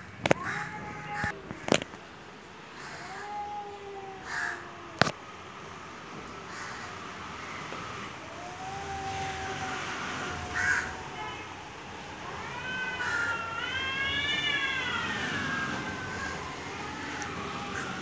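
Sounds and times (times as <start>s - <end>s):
cats yowling: 0.2s - 1.8s, 2.7s - 5.2s, 8.0s - 18.0s.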